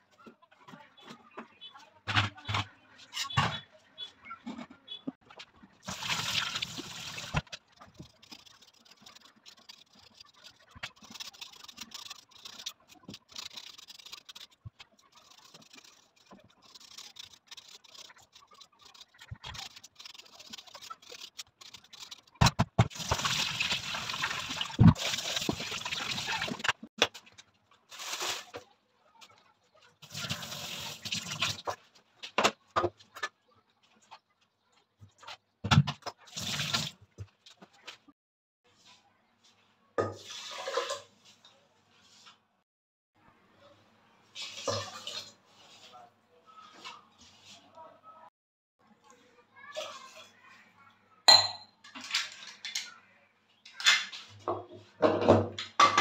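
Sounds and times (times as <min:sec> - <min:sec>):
tap water running: 0:05.8 - 0:14.5, 0:22.8 - 0:26.7, 0:30.0 - 0:31.7, 0:36.3 - 0:37.0
hand peeling potatoes: 0:05.9 - 0:26.7.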